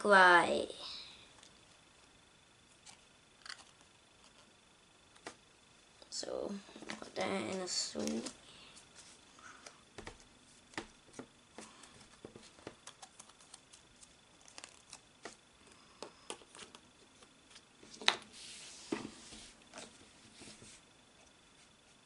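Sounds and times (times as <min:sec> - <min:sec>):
cards rustling: 0:06.8 - 0:15.4.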